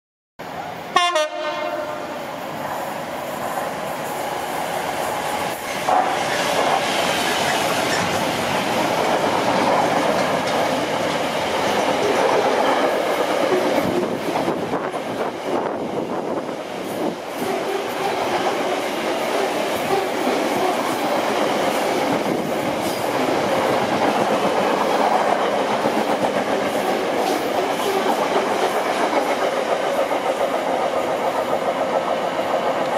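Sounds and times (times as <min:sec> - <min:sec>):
freight train rumbling past: 0:00.4 - 0:32.9
locomotive horn blast: 0:01.0 - 0:02.2.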